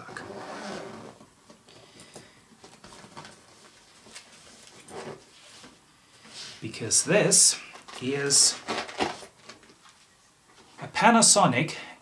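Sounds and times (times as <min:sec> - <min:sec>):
packaging rustling: 0:07.6 - 0:10.1.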